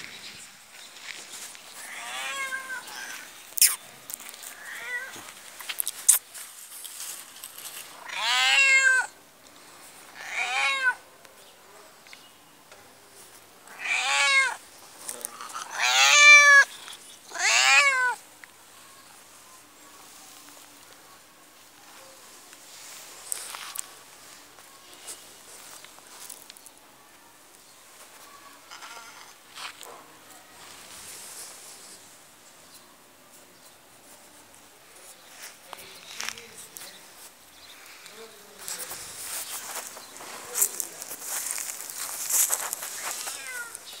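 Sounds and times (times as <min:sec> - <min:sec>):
cat meowing: 0:01.8 - 0:03.8, 0:04.5 - 0:05.2, 0:08.0 - 0:09.1, 0:10.2 - 0:11.0, 0:13.7 - 0:14.6, 0:15.6 - 0:16.7, 0:17.3 - 0:18.2, 0:43.2 - 0:43.8.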